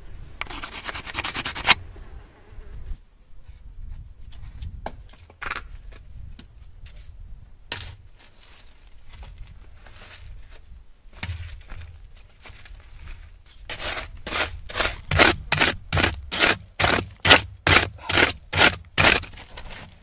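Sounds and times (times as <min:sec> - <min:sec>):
wooden pole scraping gravel: 0:07.7 - 0:20.0.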